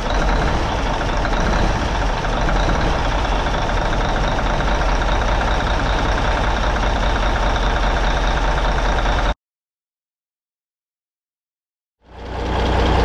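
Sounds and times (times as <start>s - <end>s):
diesel engine idling: 0.0s - 9.4s, 12.0s - 13.0s.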